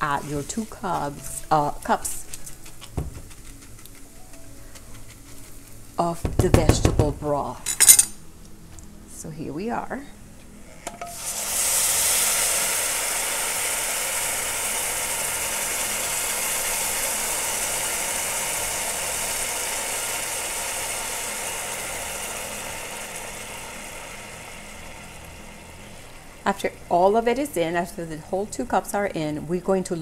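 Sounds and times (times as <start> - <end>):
pan hissing and sizzling: 0.0 - 7.6, 10.9 - 29.8
broth poured into pan: 11.1 - 26.5.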